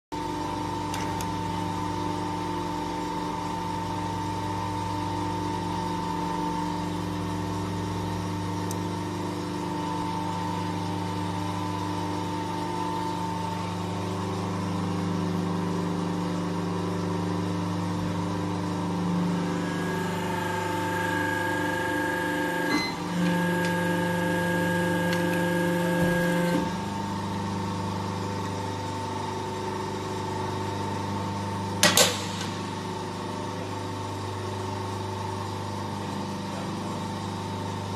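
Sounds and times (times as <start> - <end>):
machine motor and pump humming: 0.2 - 37.9
hydraulic pump whine: 0.4 - 37.9.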